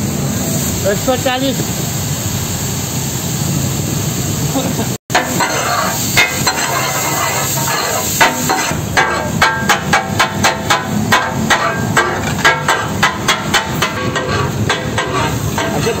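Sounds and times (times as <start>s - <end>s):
sizzling hiss from griddle: 0.0s - 16.0s
metal spatulas striking griddle: 5.1s - 16.0s.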